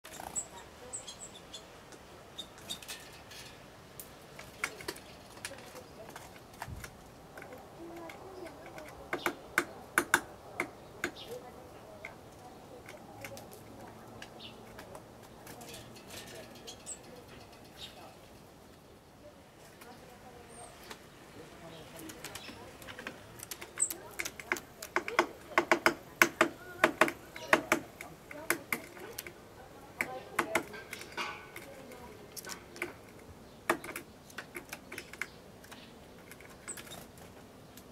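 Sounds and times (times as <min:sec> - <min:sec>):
bird tapping seed on wood: 0:04.0 - 0:17.5, 0:21.8 - 0:37.9.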